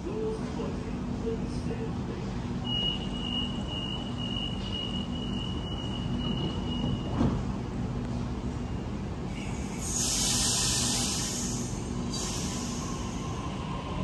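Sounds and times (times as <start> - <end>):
electric train humming: 7.6 - 14.0.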